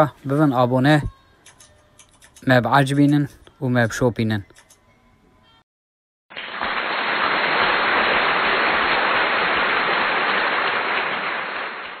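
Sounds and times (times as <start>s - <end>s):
steady hiss: 6.4s - 11.9s.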